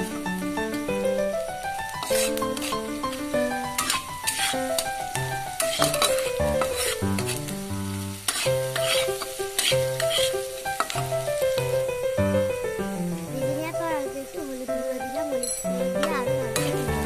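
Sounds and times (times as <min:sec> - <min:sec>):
background music: 0:00.0 - 0:17.0
food sizzling in hot oil: 0:00.0 - 0:17.0
spatula scraping a pan: 0:02.0 - 0:11.7, 0:16.0 - 0:17.0.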